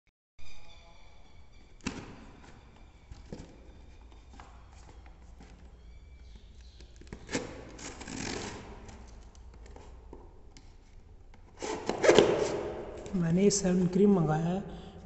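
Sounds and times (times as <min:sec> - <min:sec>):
knife scraping tape and cardboard: 0:07.1 - 0:09.2, 0:11.5 - 0:12.8.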